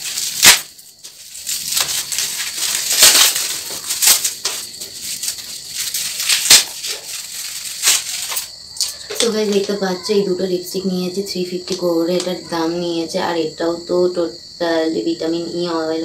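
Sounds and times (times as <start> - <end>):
sharp crackles: 0.0 - 8.5
packaging rustling and crinkling: 0.0 - 9.7.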